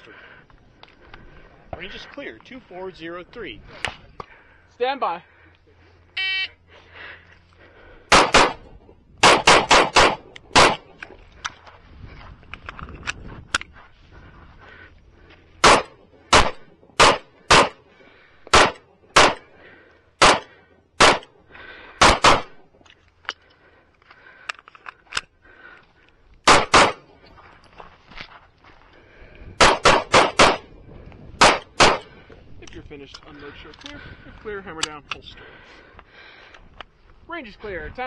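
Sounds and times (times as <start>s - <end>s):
pistol shots: 8.1s - 11.0s, 15.6s - 17.8s, 18.5s - 19.5s, 20.2s - 21.3s, 22.0s - 22.6s, 26.4s - 27.1s, 29.6s - 30.7s, 31.4s - 32.1s.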